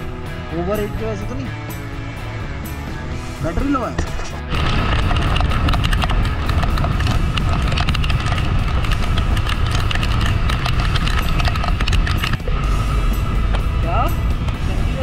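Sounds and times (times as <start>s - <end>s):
wind buffeting camera: 3.5s - 15.0s
raindrops tapping camera: 4.0s - 12.4s.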